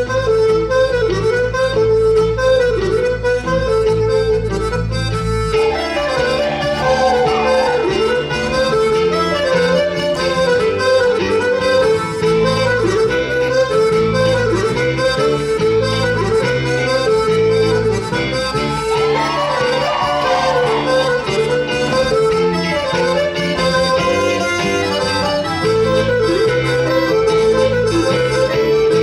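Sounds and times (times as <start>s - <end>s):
reed instrument folk melody: 0.0s - 29.0s
steady bass accompaniment: 0.0s - 29.0s.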